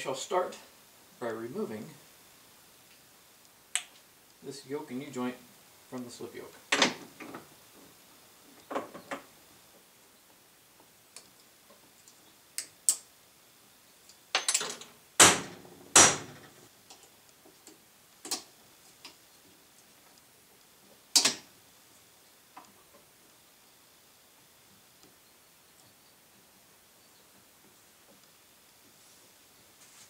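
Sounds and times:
metal parts clicking and knocking: 0:14.3 - 0:15.3.

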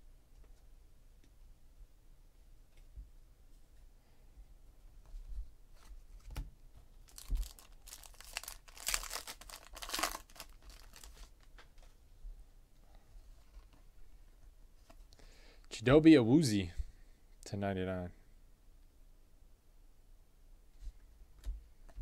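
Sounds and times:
foil wrapper tearing and crinkling: 0:07.0 - 0:11.3.

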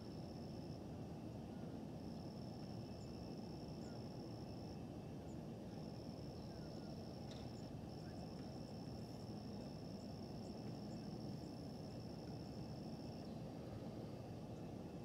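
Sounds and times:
faint bird chirps: 0:03.8 - 0:04.1, 0:06.3 - 0:08.4.

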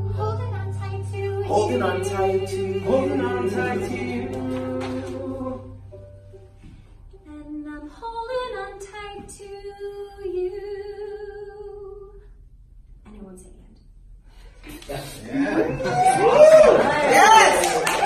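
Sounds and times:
group singing a cappella: 0:01.2 - 0:05.9.

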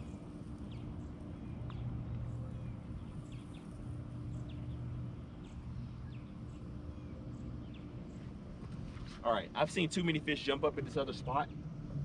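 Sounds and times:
birds chirping: 0:00.0 - 0:08.8
steady low hum: 0:00.0 - 0:12.0.

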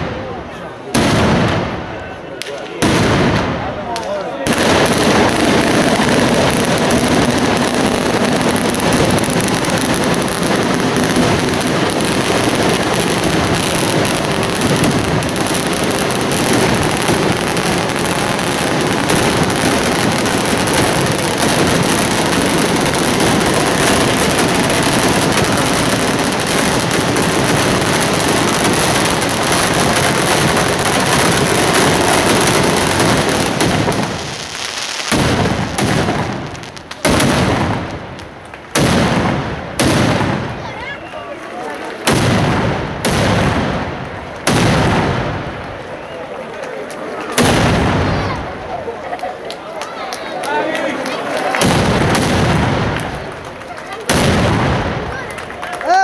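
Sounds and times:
mortars firing loud bangs: 0:00.9 - 0:40.6, 0:42.0 - 0:45.6, 0:47.3 - 0:48.5, 0:51.5 - 0:53.3, 0:54.0 - 0:55.3.

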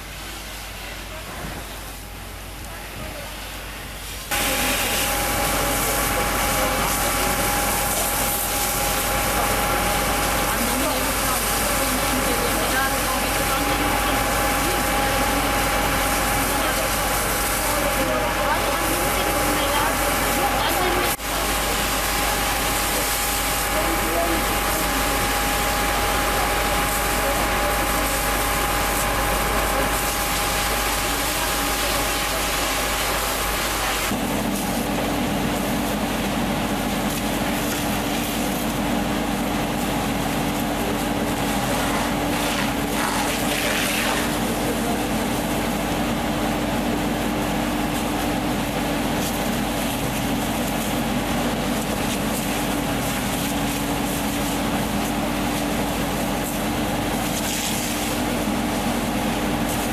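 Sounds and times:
steady low hum: 0:00.0 - 0:59.9
hiss of spray: 0:04.0 - 0:09.5
engine running: 0:04.3 - 0:59.9.

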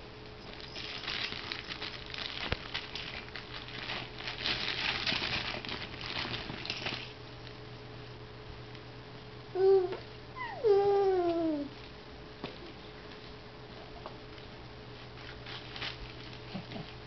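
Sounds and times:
faint steady hum: 0:00.0 - 0:17.0
fabric toys rustling and crinkling: 0:00.4 - 0:07.2, 0:14.9 - 0:17.0.

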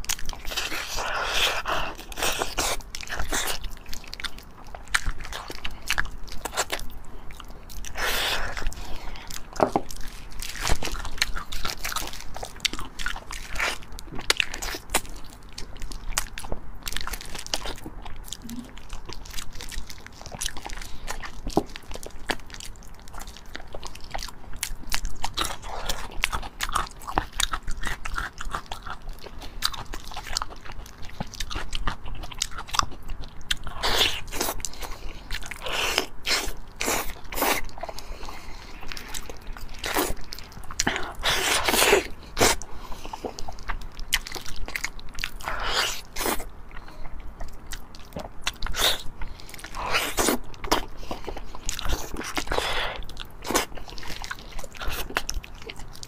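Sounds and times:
woman chewing: 0:00.0 - 0:56.0.

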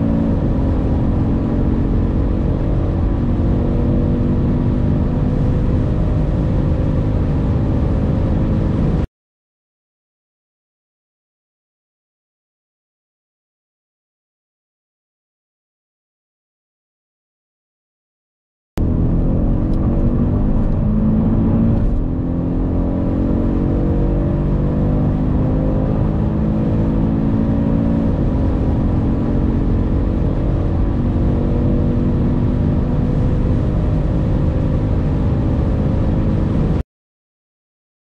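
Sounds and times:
car engine accelerating hard: 0:00.0 - 0:09.1, 0:18.8 - 0:36.8.

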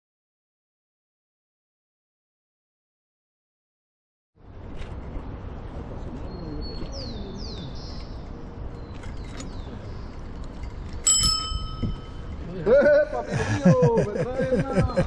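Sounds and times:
wind and road noise: 0:04.4 - 0:15.0
small birds chirping: 0:05.8 - 0:11.1
bright metallic ring: 0:11.0 - 0:12.3.

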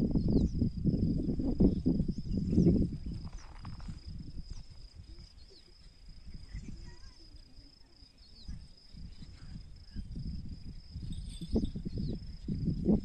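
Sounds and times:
high insect trill: 0:00.0 - 0:13.0
bird chirps: 0:01.7 - 0:03.9.

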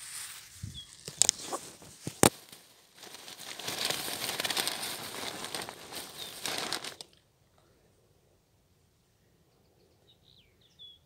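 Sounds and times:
rustling against microphone: 0:00.0 - 0:07.2.

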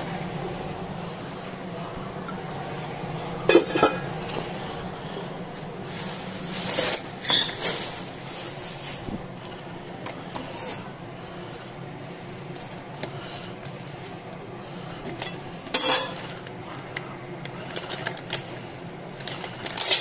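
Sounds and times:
steady low hum: 0:00.0 - 0:20.0
cookware clanking: 0:03.4 - 0:04.2, 0:15.7 - 0:16.3
rustling: 0:05.7 - 0:09.3.

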